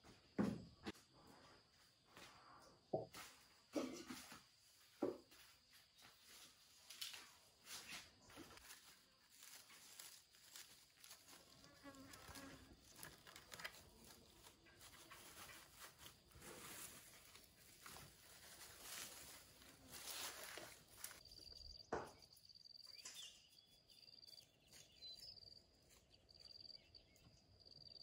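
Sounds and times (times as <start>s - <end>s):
dry fibre rustling and crackling: 6.3s - 21.3s
insect buzzing: 10.5s - 13.3s.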